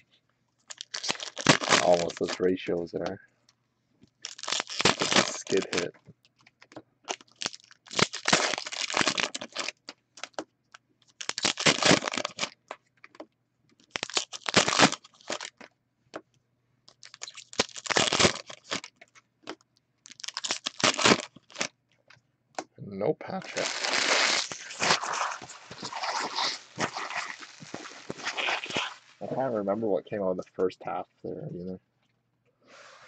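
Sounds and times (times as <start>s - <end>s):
wrapper tearing and crinkling: 0.6s - 2.5s, 4.2s - 5.9s, 7.1s - 10.4s, 11.0s - 13.2s, 13.8s - 15.7s, 16.9s - 21.7s, 23.4s - 29.3s.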